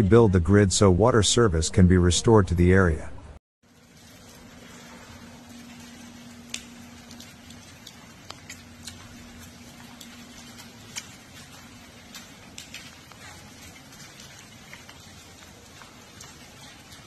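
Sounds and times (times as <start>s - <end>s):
low steady hum: 0.0s - 17.0s
light rain hissing: 3.6s - 17.0s
water dripping: 3.6s - 17.0s.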